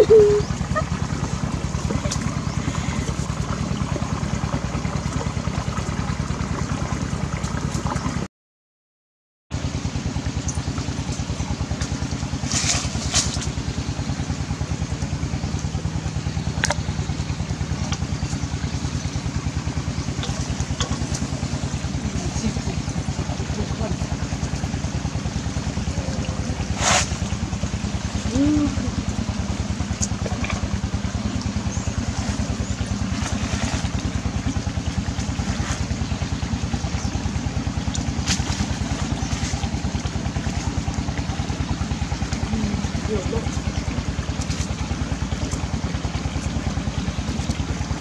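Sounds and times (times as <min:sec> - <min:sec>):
small motor pulsing: 0:00.0 - 0:03.6.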